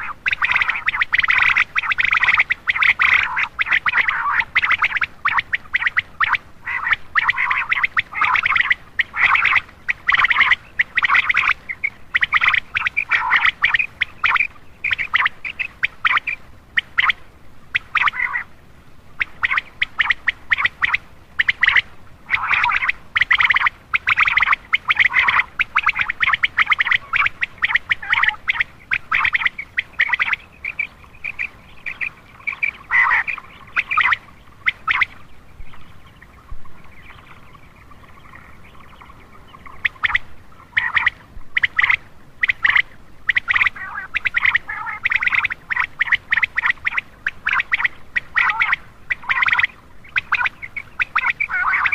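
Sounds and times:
quail calling: 0.0 - 51.9.

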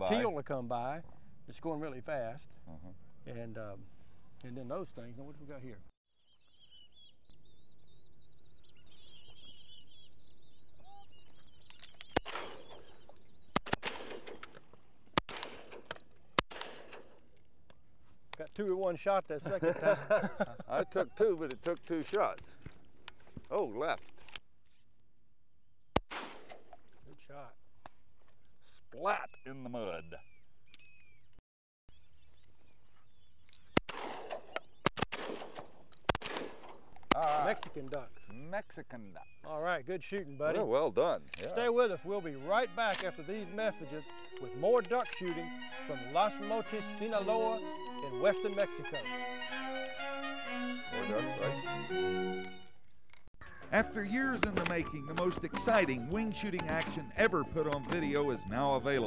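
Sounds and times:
shotgun shots: 12.1 - 12.9, 13.5 - 14.6, 15.2 - 17.2, 25.9 - 26.7, 33.7 - 37.8
ducks calling: 53.4 - 59.0.

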